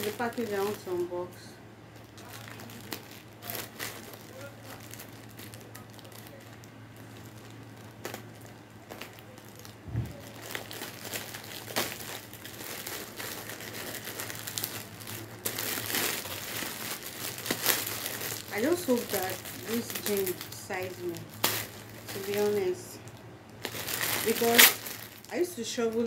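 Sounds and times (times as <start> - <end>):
plastic crinkling: 0.0 - 26.0
scissors cutting plastic bag: 8.9 - 22.8, 23.6 - 25.4.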